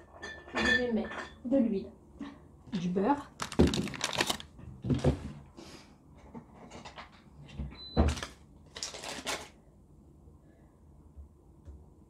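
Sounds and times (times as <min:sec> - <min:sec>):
kitchen items knocking and clattering: 0:00.0 - 0:01.5, 0:03.4 - 0:05.4.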